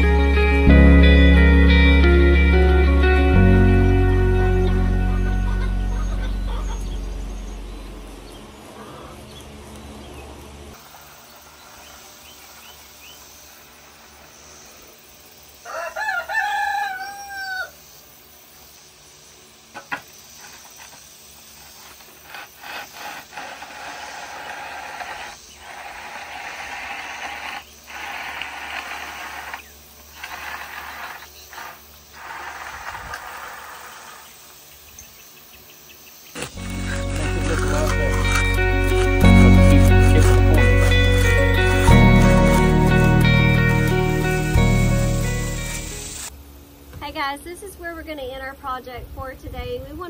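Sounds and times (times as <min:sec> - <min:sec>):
rooster crowing: 0:15.6 - 0:17.9
bull float scraping wet concrete: 0:19.8 - 0:34.4, 0:36.4 - 0:46.3.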